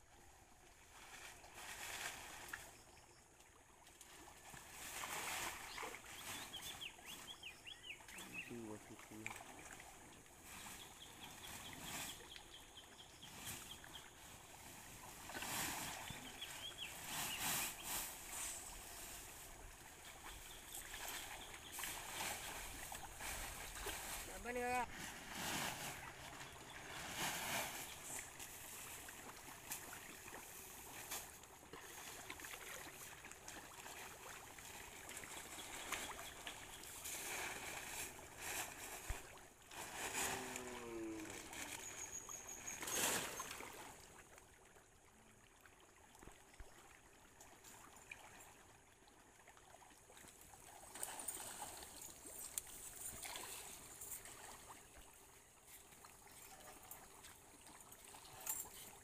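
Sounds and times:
fish splashing: 0:13.8 - 0:24.3.

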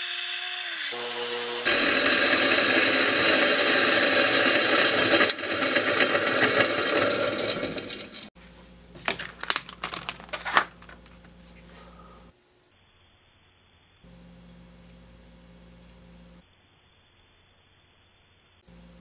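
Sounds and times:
motor spinning polishing wheel: 0:00.0 - 0:08.3.

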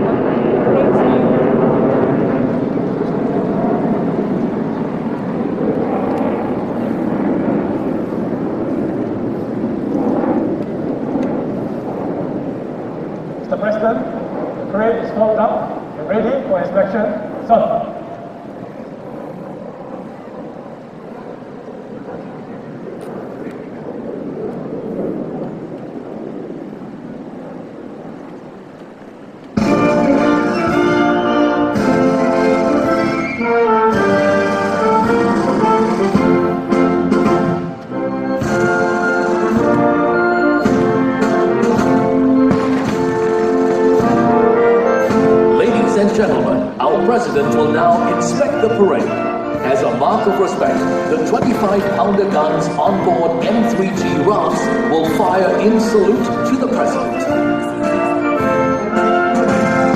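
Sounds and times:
distant jet roar: 0:00.0 - 0:59.9
band music with strings and brass: 0:29.6 - 0:59.9.

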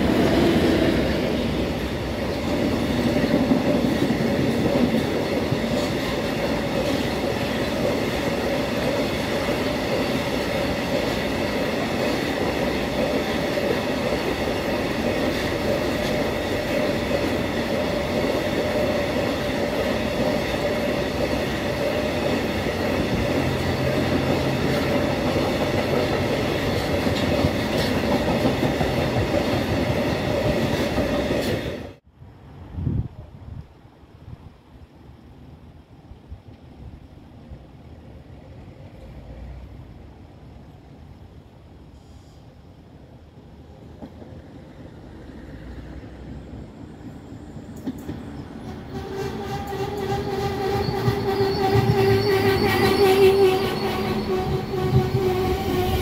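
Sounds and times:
freight train wagons rumbling: 0:00.0 - 0:32.0, 0:46.6 - 0:56.0.

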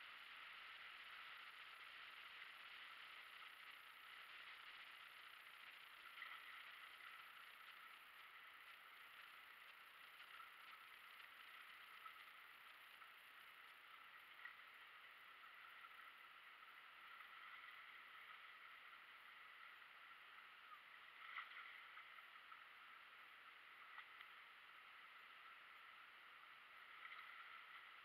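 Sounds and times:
faint steady hiss: 0:00.0 - 0:28.0
faint clicks: 0:23.7 - 0:25.6.

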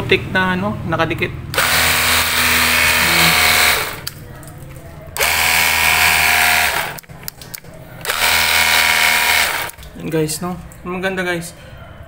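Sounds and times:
pressure washer spraying: 0:01.6 - 0:04.1.

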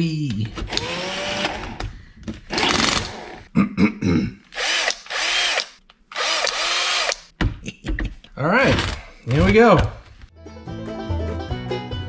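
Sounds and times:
cordless drill motor whining: 0:00.7 - 0:01.8, 0:02.5 - 0:03.4, 0:04.6 - 0:07.3.

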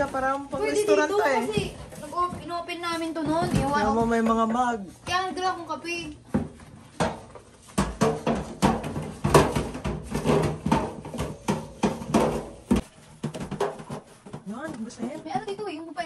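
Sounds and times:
dishes and utensils clattering: 0:06.4 - 0:15.9.

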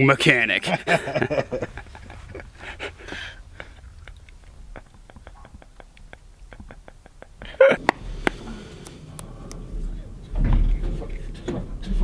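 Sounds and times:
men laughing: 0:00.3 - 0:08.7.

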